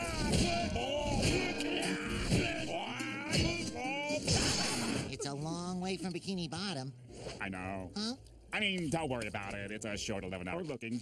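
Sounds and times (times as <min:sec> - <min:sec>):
cartoon soundtrack music: 0:00.0 - 0:06.5.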